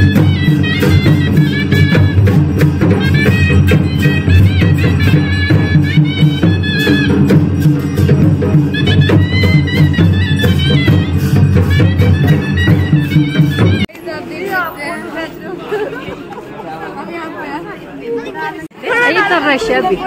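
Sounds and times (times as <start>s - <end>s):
reedy wind instrument melody: 0.0s - 13.9s
steady drumming: 0.0s - 13.9s.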